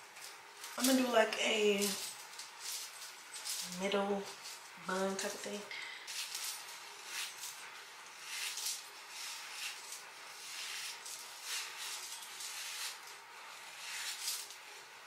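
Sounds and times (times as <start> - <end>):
hairbrush swishing through hair: 6.0 - 15.0.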